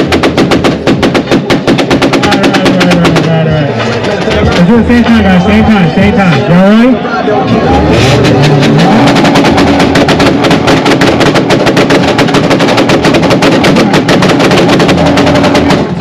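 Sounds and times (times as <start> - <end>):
race car engine on limiter: 7.3 - 10.8
exhaust pops: 7.9 - 16.0.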